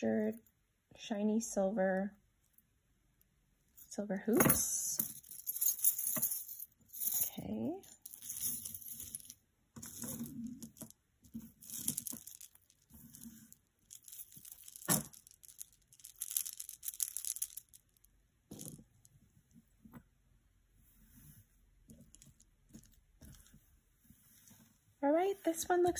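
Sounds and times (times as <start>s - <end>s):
chain clinks: 5.0s - 10.9s, 11.6s - 17.9s
rustling: 8.0s - 19.1s, 20.8s - 25.9s.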